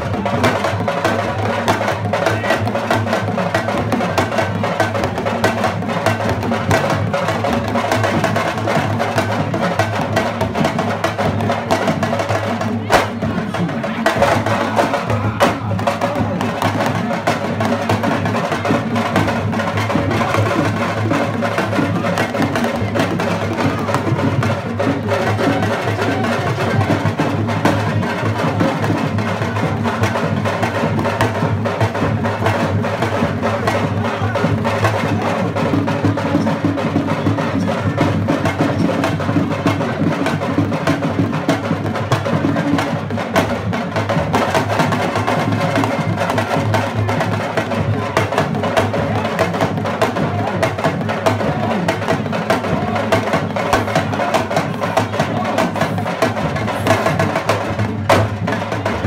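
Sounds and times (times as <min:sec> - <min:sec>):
dance music with fast drumming: 0:00.0 - 0:59.0.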